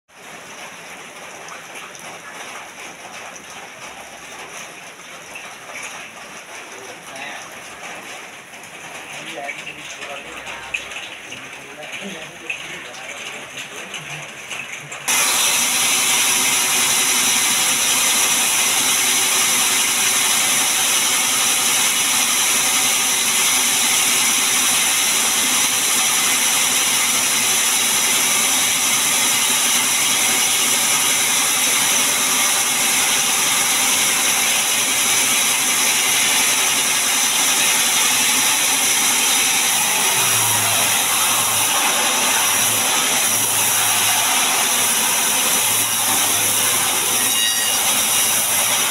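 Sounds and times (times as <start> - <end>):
band saw droning: 15.1 - 48.9.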